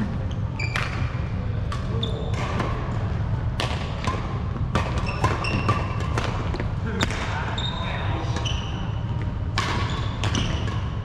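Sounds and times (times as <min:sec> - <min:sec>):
racket striking shuttlecock: 0:03.6 - 0:07.2, 0:09.5 - 0:11.0
sneakers squeaking on wooden floor: 0:04.8 - 0:06.1, 0:07.0 - 0:09.2, 0:09.8 - 0:10.9.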